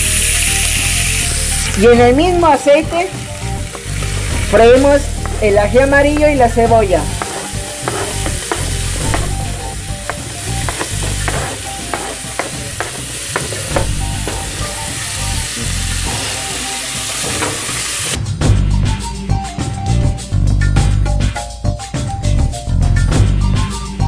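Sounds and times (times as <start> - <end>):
vegetables sizzling in hot oil: 0.0 - 18.2
wooden spoon stirring: 3.6 - 14.8
taps and scrapes on cutting board: 7.0 - 14.6.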